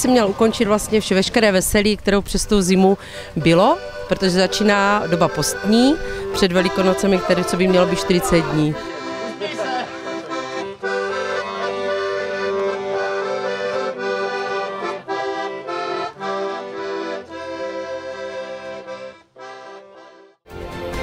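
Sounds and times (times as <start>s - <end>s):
accordion playing chords: 0.0s - 21.0s
music: 2.2s - 21.0s.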